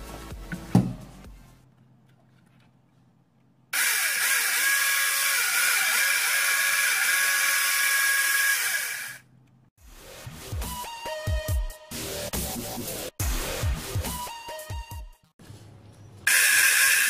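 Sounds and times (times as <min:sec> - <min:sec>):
electric chainsaw whining: 0:03.8 - 0:09.2, 0:16.3 - 0:17.0.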